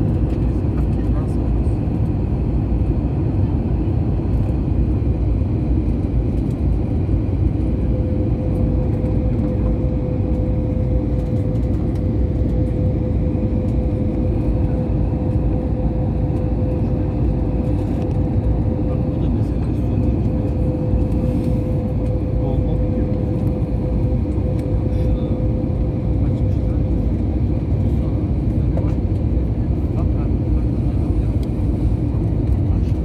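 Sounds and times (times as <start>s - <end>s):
jet engines roaring in cabin: 0.0s - 33.0s
steady hum: 0.0s - 33.0s.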